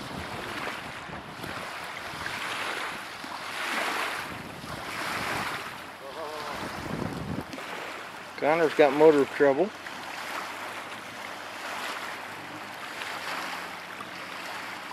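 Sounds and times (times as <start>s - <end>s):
wind on microphone: 0.0s - 8.0s
water noise: 0.0s - 14.9s.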